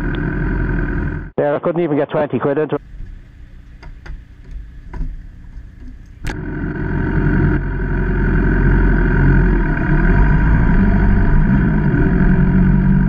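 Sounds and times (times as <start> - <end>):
motorcycle engine idling: 2.8 - 13.0.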